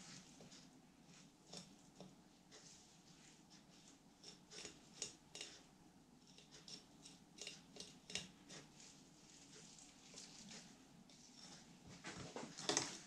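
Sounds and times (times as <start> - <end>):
knife scraping fish bones: 4.2 - 5.7, 6.3 - 8.8.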